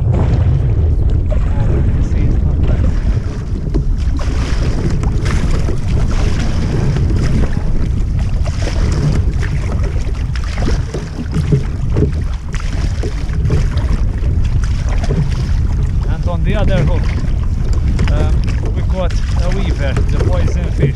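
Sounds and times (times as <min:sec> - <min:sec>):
paddle splashing in choppy water: 0:00.0 - 0:20.9
wind noise on microphone: 0:00.0 - 0:20.9.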